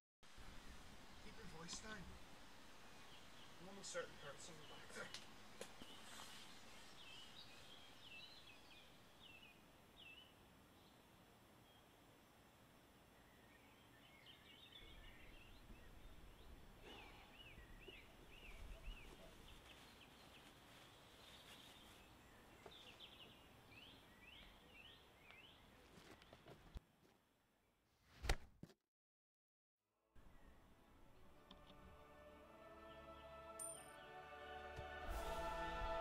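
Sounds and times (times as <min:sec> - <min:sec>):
birds chirping: 0:00.4 - 0:12.0, 0:13.1 - 0:26.6
rising swell ending in loud hit: 0:34.8 - 0:36.0.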